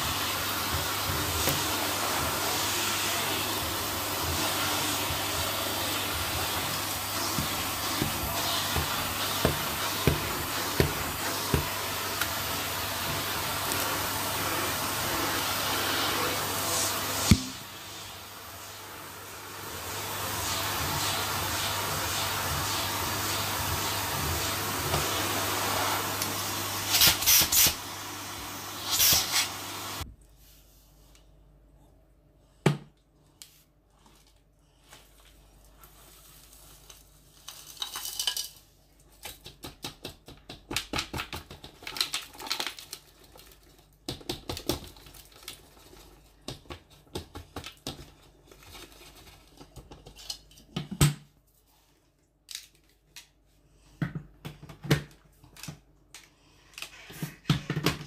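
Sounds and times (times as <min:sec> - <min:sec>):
vacuum cleaner on carpet: 0:00.0 - 0:30.0
small debris clicking and rattling: 0:36.9 - 0:39.6.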